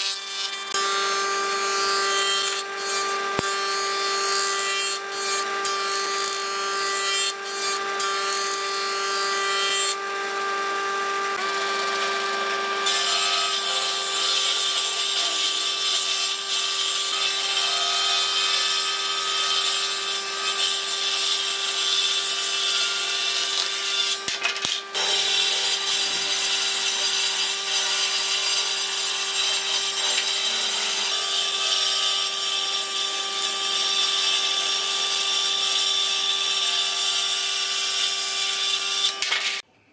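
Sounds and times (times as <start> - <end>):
circular saw ripping boards: 0.0 - 36.4, 37.1 - 39.7
woodworking machine planing wood: 0.0 - 39.6.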